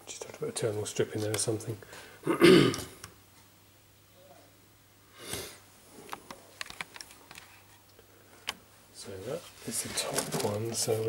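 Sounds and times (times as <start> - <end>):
person sniffing: 5.1 - 5.6.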